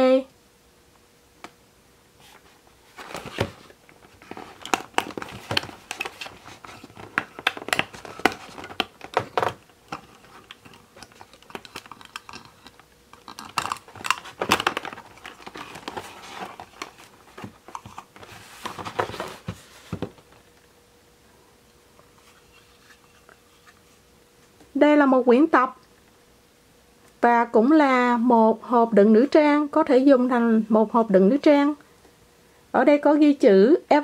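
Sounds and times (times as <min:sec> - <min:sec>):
packaging crinkling and rustling: 0:02.3 - 0:20.5.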